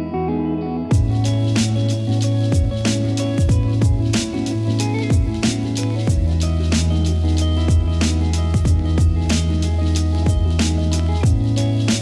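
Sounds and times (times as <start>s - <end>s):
deep booming kick drums: 0.9s - 1.3s, 2.6s - 2.8s, 3.4s - 4.3s, 5.1s - 6.4s, 7.7s - 8.0s, 8.6s - 9.3s, 10.2s - 11.6s.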